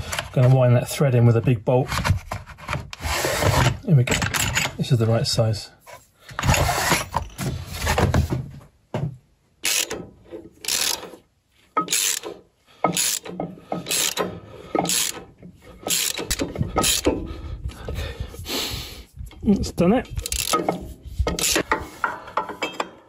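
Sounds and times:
ratchet wrench clicking: 9.6s - 10.0s, 10.6s - 11.1s, 11.8s - 12.3s, 12.9s - 13.3s, 13.9s - 14.2s, 14.9s - 15.2s, 15.9s - 17.0s, 20.2s - 20.6s.

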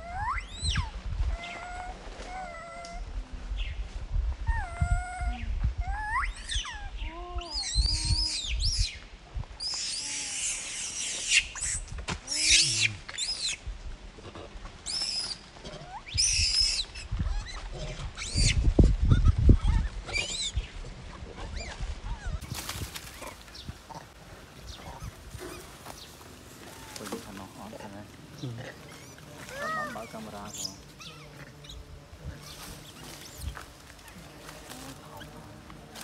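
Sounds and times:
baby macaque screaming: 0.0s - 3.0s, 9.6s - 13.6s, 14.9s - 20.5s, 28.9s - 31.4s
baby macaque cooing: 0.0s - 3.1s, 4.5s - 8.6s, 9.7s - 13.6s, 14.9s - 26.0s, 26.6s - 35.5s
low rumbling on microphone: 0.0s - 9.6s.

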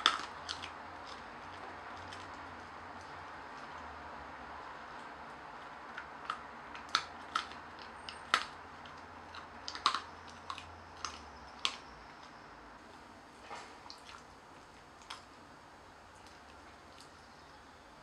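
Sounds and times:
dog crunching biscuit: 0.0s - 12.4s, 13.6s - 15.4s.

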